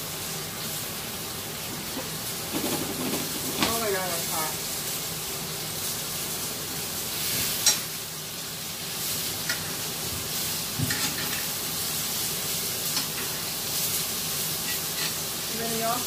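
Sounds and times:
fat sizzling in a skillet: 0.0 - 16.0.

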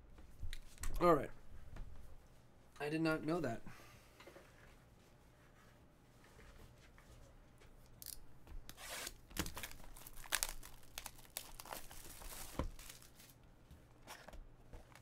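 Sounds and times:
plastic shrink-wrap crinkling: 9.0 - 13.4.

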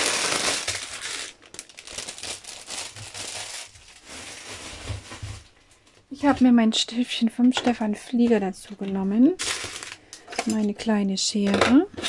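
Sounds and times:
plastic film crinkling: 0.0 - 5.6, 9.2 - 10.2.

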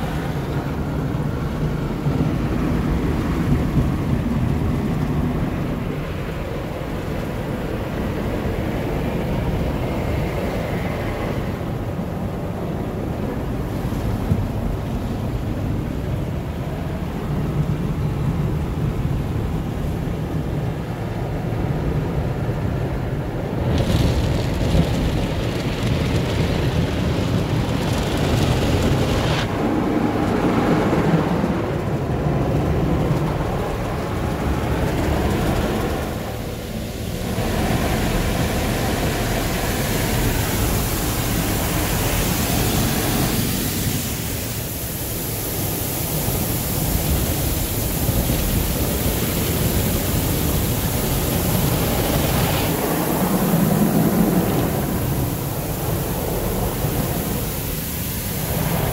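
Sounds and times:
steady low rumble: 22.9 - 58.9
water spray beating on car body: 23.6 - 58.9.

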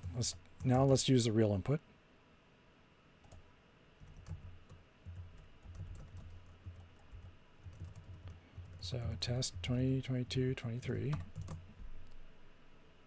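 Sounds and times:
computer keyboard typing: 4.0 - 9.8, 10.8 - 12.2.

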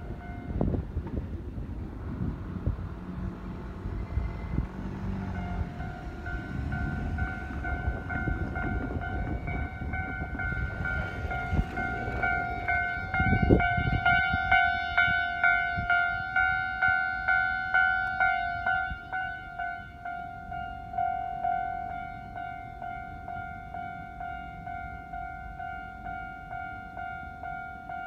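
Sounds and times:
level-crossing warning bell: 0.0 - 0.9, 3.9 - 28.0.

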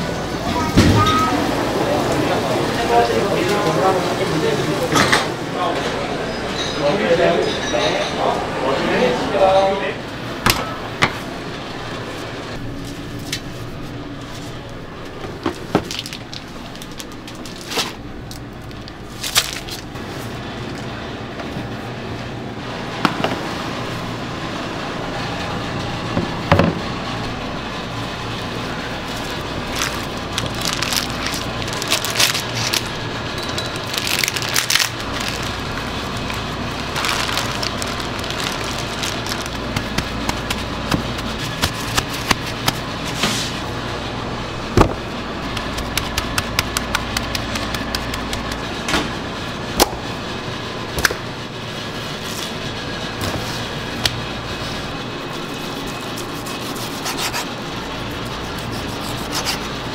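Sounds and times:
steady background hum: 0.0 - 59.9
plastic bag crinkling: 15.6 - 19.9, 29.0 - 33.1, 33.7 - 42.8.

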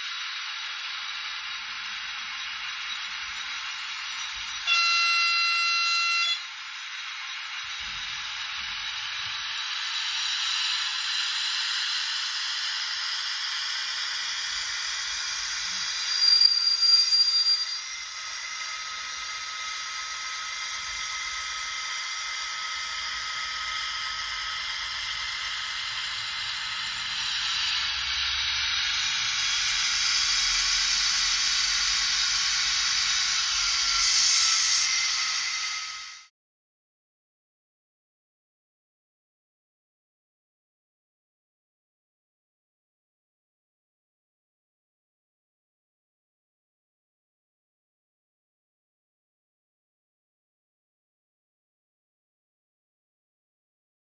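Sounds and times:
short high-pitched sound: 4.6 - 6.4, 15.6 - 18.2
locomotive horn from small speaker: 4.6 - 6.5
diesel engine sound with hiss: 17.9 - 36.3.

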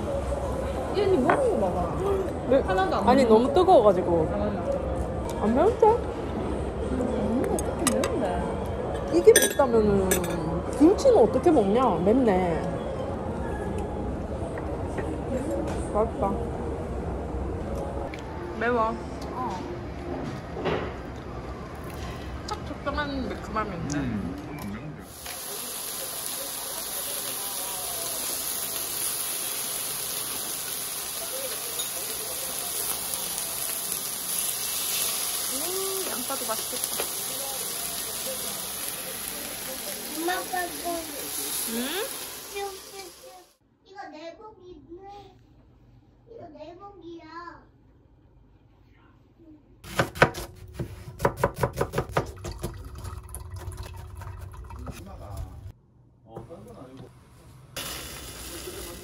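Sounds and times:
steady hiss: 25.1 - 36.5, 57.8 - 59.0
knife chopping on cutting board: 49.8 - 52.7.

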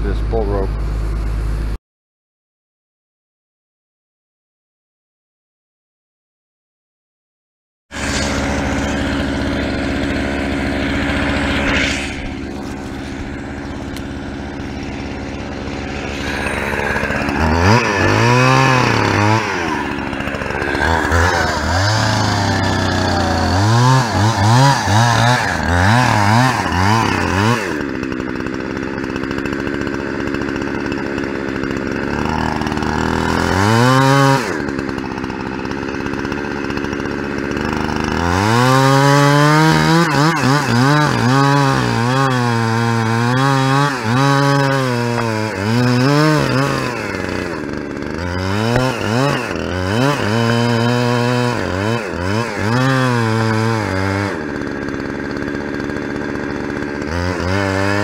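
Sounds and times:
chainsaw engine revving: 7.9 - 58.0.

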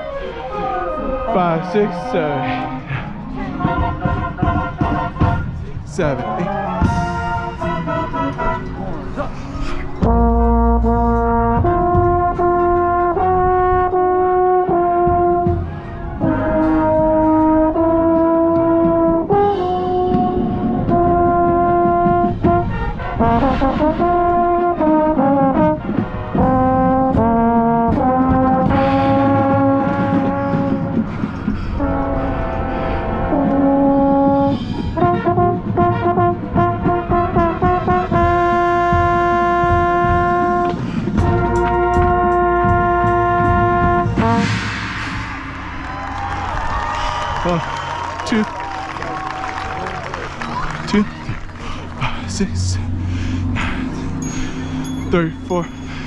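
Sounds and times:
trombone notes sliding: 0.0 - 46.6
marching band brass playing: 0.0 - 56.0.

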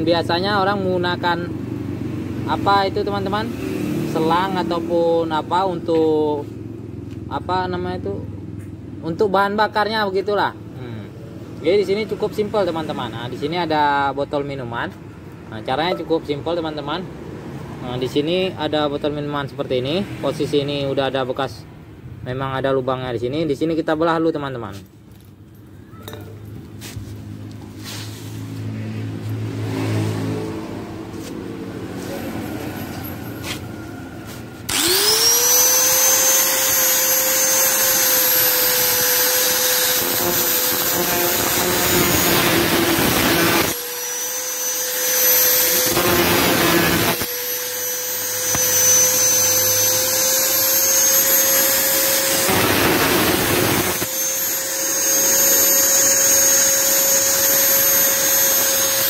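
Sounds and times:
angle grinder whine: 2.4 - 6.5, 28.6 - 59.0
grinder cutting metal can: 34.6 - 59.0.

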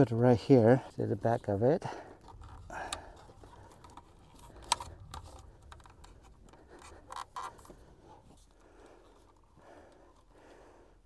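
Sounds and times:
cable handling clicks and rustling: 0.0 - 10.4.

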